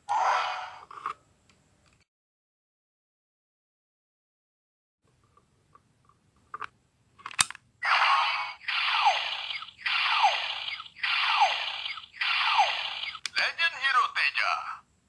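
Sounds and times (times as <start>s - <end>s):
sharp plastic click: 7.3s - 7.6s
electronic toy sound effect: 7.8s - 13.3s.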